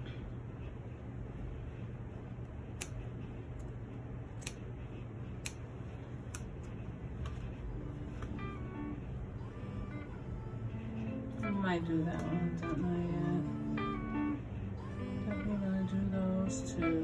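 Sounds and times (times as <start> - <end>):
low steady hum: 0.0 - 17.0
scissors snipping denim: 2.7 - 3.0, 4.4 - 4.6, 5.4 - 5.6.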